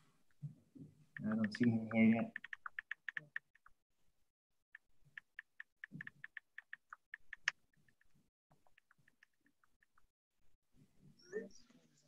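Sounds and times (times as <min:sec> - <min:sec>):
keyboard key clicks: 0:01.2 - 0:03.6.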